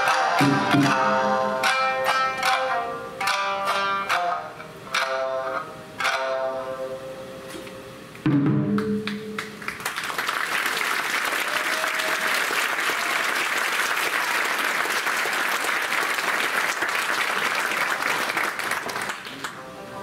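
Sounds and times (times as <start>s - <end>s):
audience applauding: 9.1s - 19.6s.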